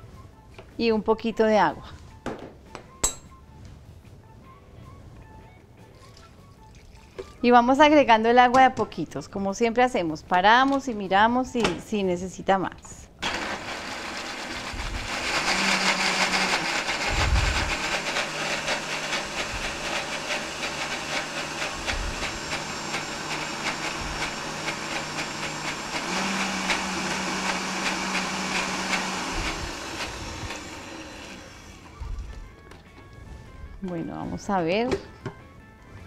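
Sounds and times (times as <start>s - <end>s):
blender motor whirring: 13.2s - 32.4s.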